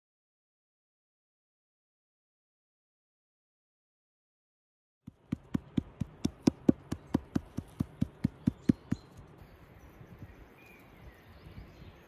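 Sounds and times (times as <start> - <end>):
faint outdoor background: 5.0 - 12.0
fast sharp knocks: 5.1 - 9.1
bird chirp: 5.2 - 12.0.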